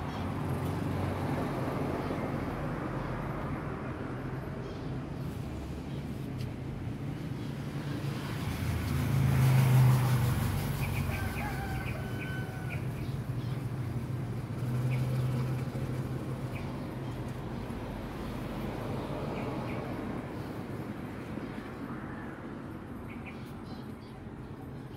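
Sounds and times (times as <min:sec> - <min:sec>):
vehicles passing: 0:00.0 - 0:24.9.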